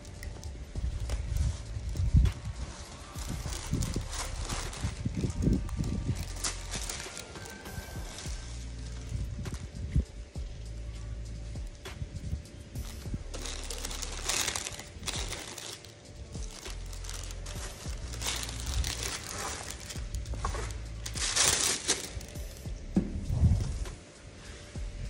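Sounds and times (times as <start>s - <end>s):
soft background music: 0.0s - 25.0s
packaging crinkling: 2.6s - 8.3s, 13.0s - 22.6s.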